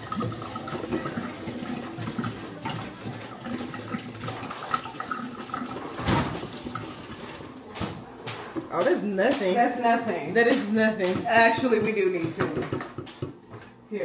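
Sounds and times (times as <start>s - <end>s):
water running and splashing: 0.0s - 7.6s.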